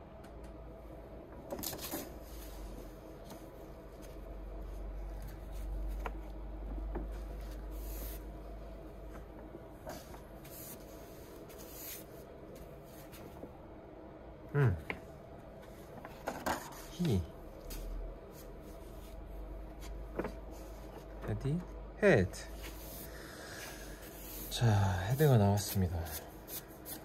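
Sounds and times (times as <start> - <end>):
low steady hum: 0.0 - 27.0
paper pages rustling: 1.5 - 8.2, 15.9 - 21.2, 25.1 - 27.0.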